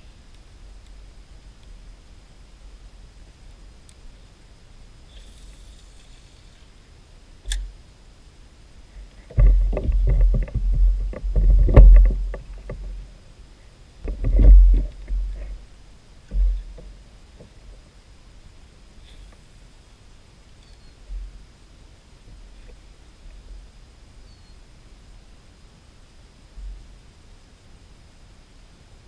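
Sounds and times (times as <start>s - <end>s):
sharp click: 7.5s - 7.7s.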